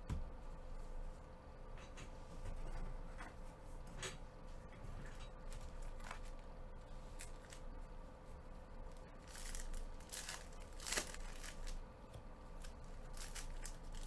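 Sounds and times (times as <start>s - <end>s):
foil wrapper tearing and crinkling: 9.2s - 11.8s, 12.6s - 14.0s.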